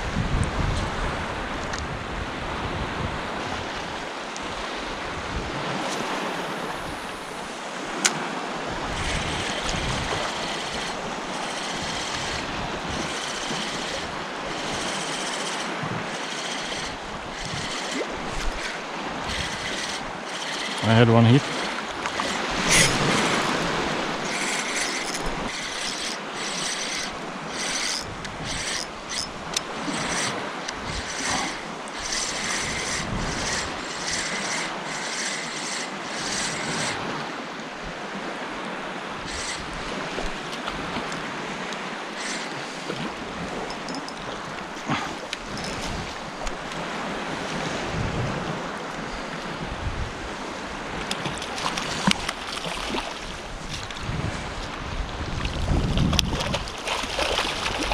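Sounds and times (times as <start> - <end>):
wind buffeting microphone: 0.0 - 57.9
water lapping: 5.6 - 48.0, 50.3 - 57.9
spinning reel cranking: 8.8 - 37.2, 39.2 - 40.3, 41.9 - 44.2, 45.3 - 46.0.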